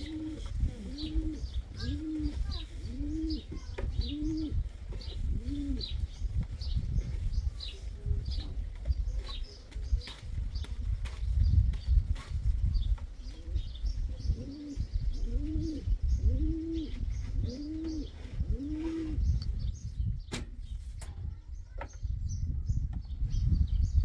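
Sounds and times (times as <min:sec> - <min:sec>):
pigeon cooing: 0:00.0 - 0:06.0, 0:13.3 - 0:19.4.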